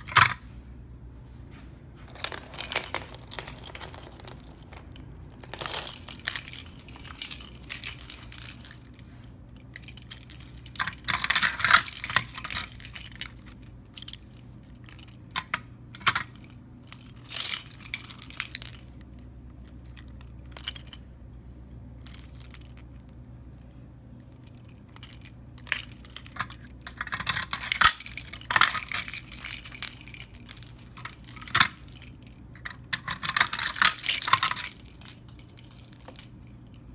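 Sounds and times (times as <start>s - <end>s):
low steady hum: 0.0s - 36.9s
keys jangling on a keyring: 2.1s - 21.0s, 22.0s - 36.9s.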